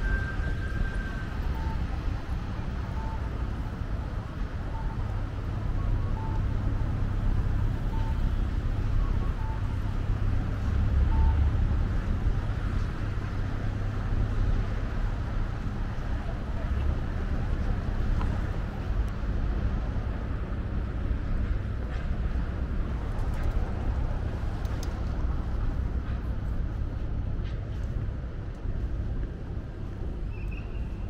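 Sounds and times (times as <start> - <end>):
road traffic rumble: 0.0 - 31.0.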